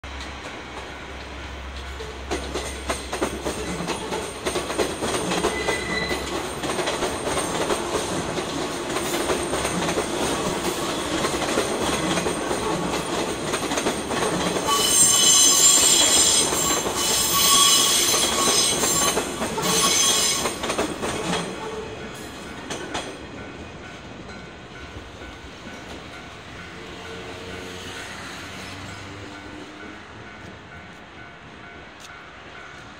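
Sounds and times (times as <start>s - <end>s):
electric train running past: 0.0s - 32.9s
high-pitched wheel squeal: 5.5s - 6.3s, 14.7s - 20.5s.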